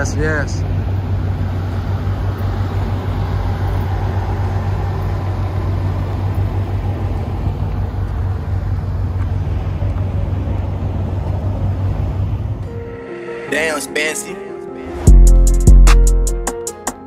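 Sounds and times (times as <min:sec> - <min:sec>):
car engine and road noise: 0:00.0 - 0:17.0.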